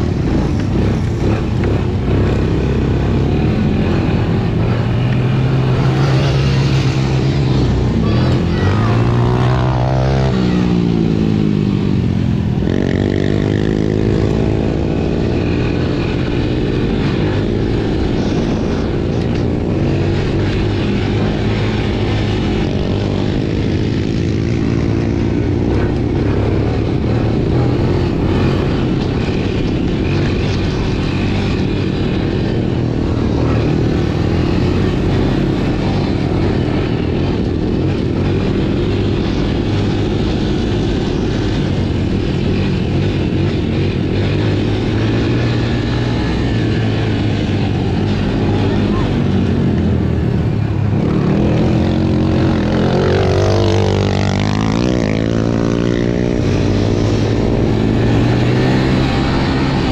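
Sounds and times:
quad engine revving: 0:00.0 - 0:59.9.

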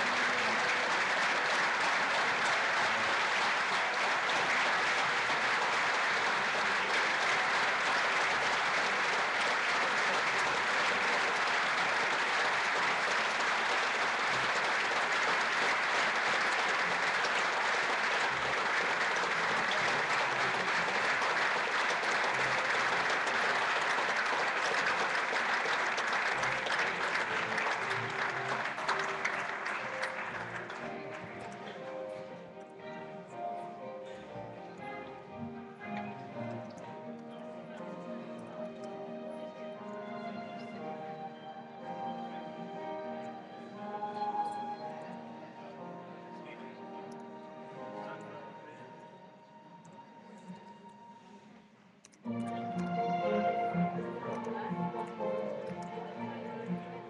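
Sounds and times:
audience applauding: 0:00.0 - 0:32.6, 0:52.0 - 0:57.0.

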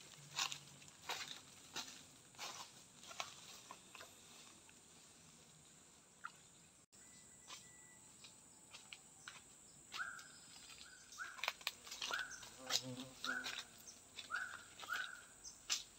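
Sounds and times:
footsteps in dry leaves: 0:00.0 - 0:05.3, 0:08.7 - 0:15.9.

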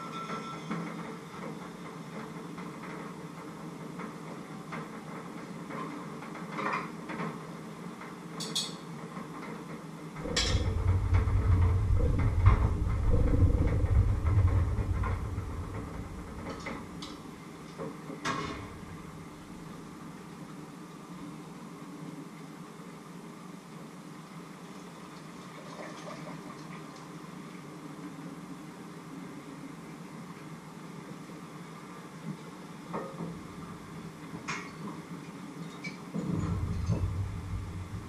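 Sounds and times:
steady background hum: 0:00.0 - 0:38.0
utensils and cookware clinking: 0:08.4 - 0:08.9, 0:10.2 - 0:10.7
loud low rumble: 0:10.2 - 0:17.4, 0:36.2 - 0:38.0.

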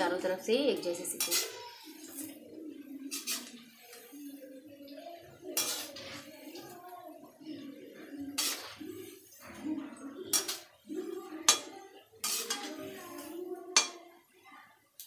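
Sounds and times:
metal spoon scraping a steel pan: 0:01.0 - 0:02.4, 0:03.0 - 0:04.2, 0:05.4 - 0:06.8, 0:08.1 - 0:10.8, 0:11.4 - 0:14.0.

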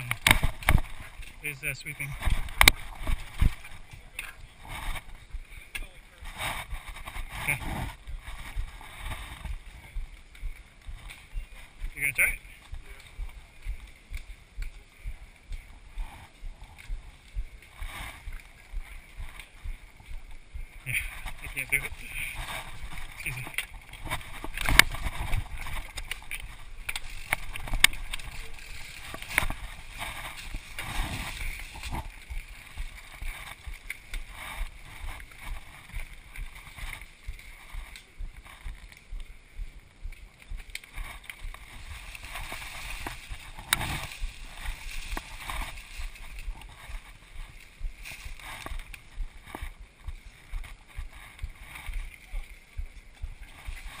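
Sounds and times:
camera housing rubbing and rustling: 0:00.0 - 0:01.4, 0:02.1 - 0:05.5, 0:06.2 - 0:10.0, 0:17.7 - 0:38.9, 0:40.8 - 0:52.4.

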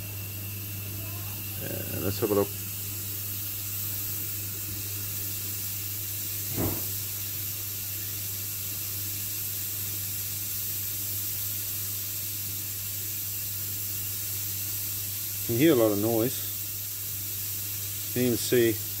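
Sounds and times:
steam hissing from espresso machine: 0:00.0 - 0:19.0
short knock: 0:06.5 - 0:07.0.

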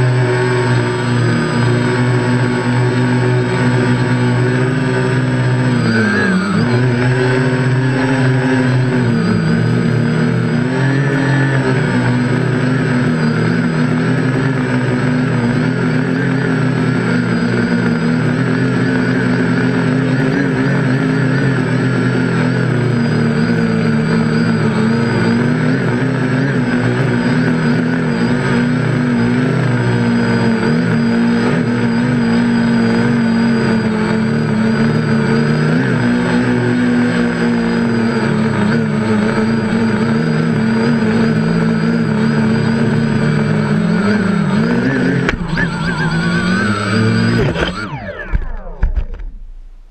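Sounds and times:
drone motors and propellers whirring: 0:00.0 - 0:49.9
drone knocking on landing: 0:44.6 - 0:49.9.

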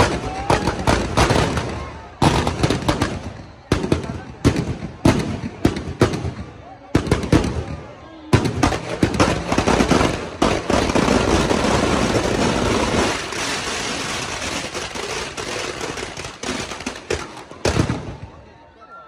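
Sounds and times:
firecrackers crackling: 0:00.0 - 0:18.4
fire roaring: 0:08.8 - 0:17.0.

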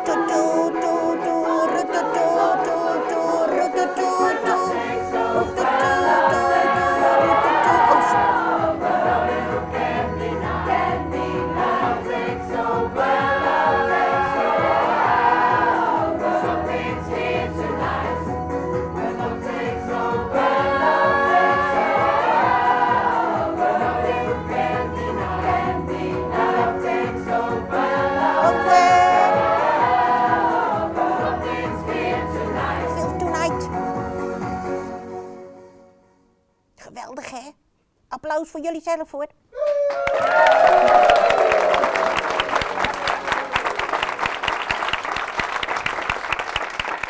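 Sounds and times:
choir singing: 0:00.0 - 0:33.4.

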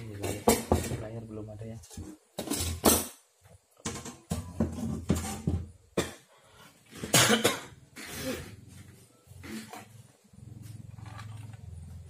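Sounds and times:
person coughing: 0:07.0 - 0:08.5.

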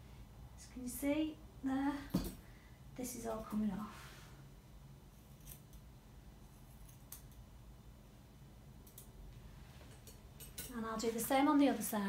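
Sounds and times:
low room hum: 0:00.0 - 0:12.0
scissors snipping hair: 0:06.5 - 0:07.4.

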